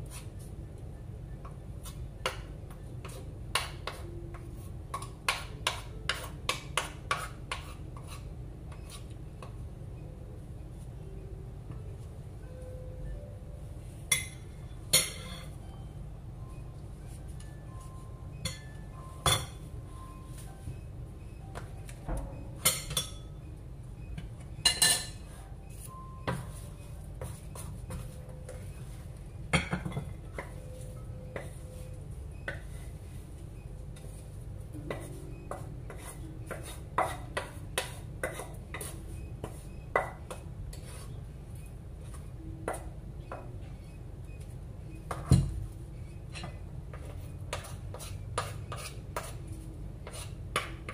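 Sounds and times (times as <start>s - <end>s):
low steady hum: 0.0s - 50.9s.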